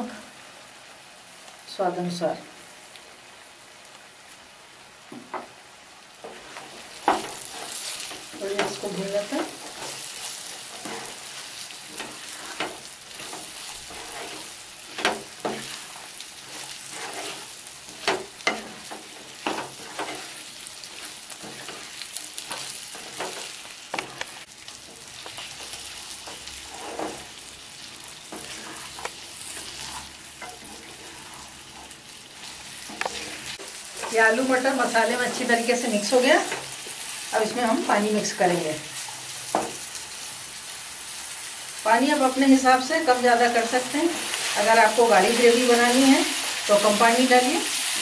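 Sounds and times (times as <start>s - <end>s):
vegetables sizzling in oil: 0.0s - 48.0s
spatula scraping and knocking pot: 10.6s - 24.4s.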